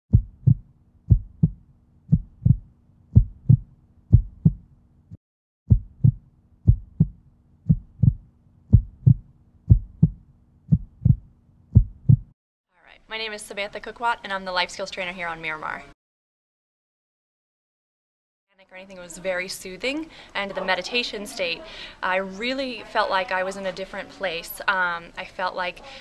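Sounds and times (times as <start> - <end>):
heartbeat: 0.1 - 4.7, 5.7 - 12.4.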